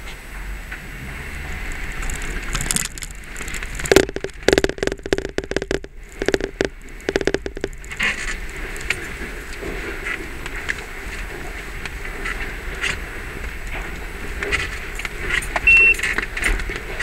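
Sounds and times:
jeep driving noise: 0.2s - 6.4s
camera tapping against windshield: 2.1s - 8.1s.

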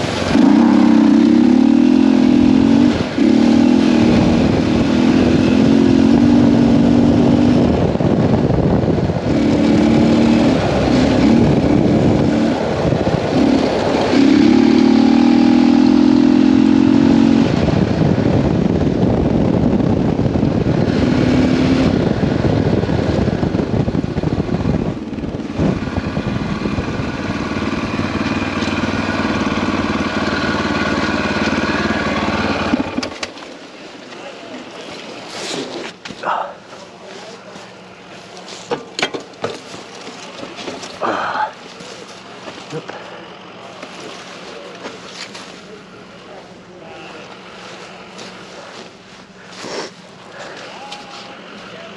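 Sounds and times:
wind rush: 0.0s - 16.0s, 16.8s - 27.5s
motorcycle engine revving: 0.0s - 34.9s.

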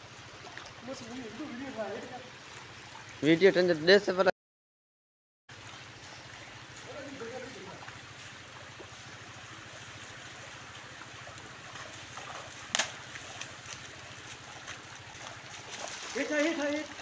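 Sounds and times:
wading feet splashing: 0.0s - 3.7s, 5.5s - 17.0s
shallow water running: 0.0s - 4.3s, 5.5s - 17.0s
sharp splash: 6.4s - 17.0s.

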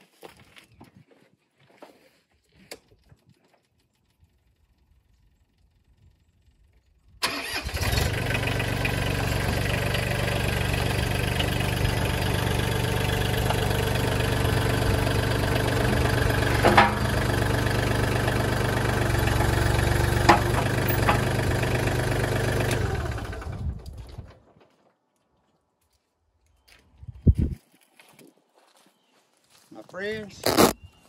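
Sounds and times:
tractor diesel engine idling: 7.2s - 23.8s
sharp metallic clanks: 16.5s - 17.2s.

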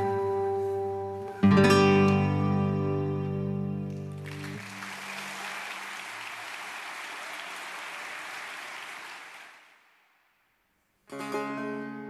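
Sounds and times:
audience applause: 4.1s - 10.0s.

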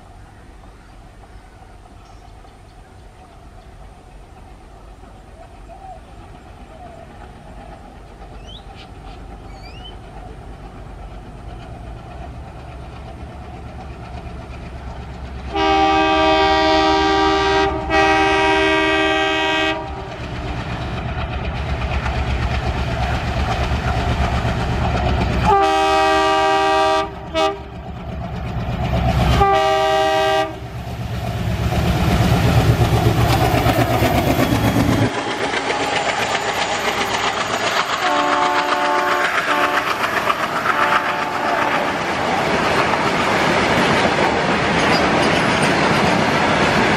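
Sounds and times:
train wheels clickety-clack: 0.6s - 46.9s
locomotive horn blasts: 15.5s - 20.1s, 25.4s - 27.7s, 29.4s - 30.8s, 38.0s - 39.9s, 40.7s - 42.0s.

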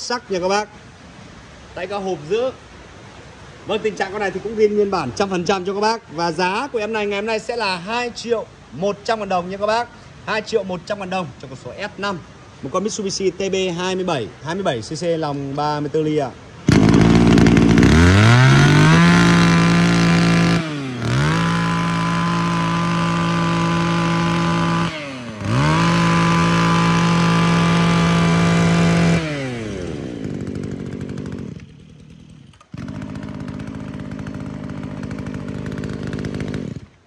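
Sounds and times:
brush cutter engine revving: 16.6s - 37.0s.

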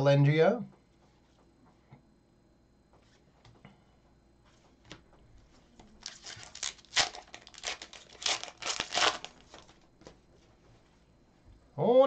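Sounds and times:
card pack wrapper tearing and crinkling: 6.0s - 9.8s.

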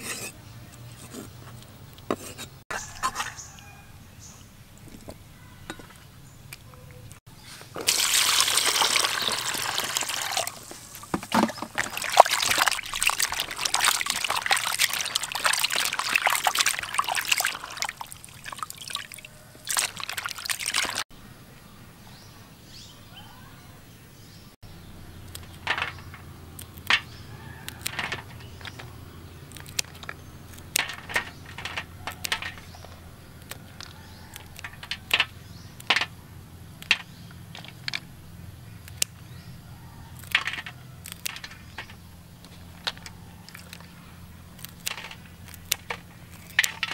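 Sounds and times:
water pouring into plastic basin: 7.8s - 21.0s.

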